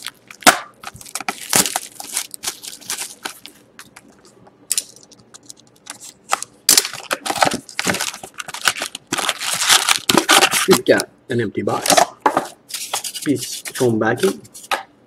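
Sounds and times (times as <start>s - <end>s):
shrink wrap crinkling and tearing: 0.0s - 11.0s.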